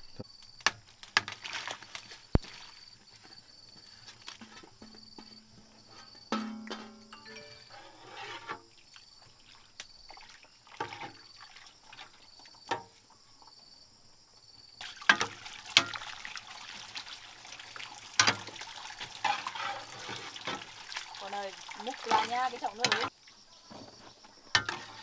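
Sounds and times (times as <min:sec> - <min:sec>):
liquid sloshing: 0:14.8 - 0:23.1.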